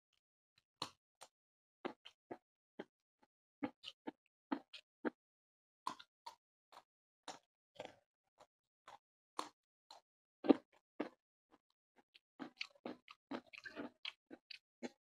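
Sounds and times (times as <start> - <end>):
man chewing with wet smacks: 0.8 - 2.4, 3.6 - 4.8, 5.9 - 8.0, 8.9 - 11.6, 12.4 - 15.0.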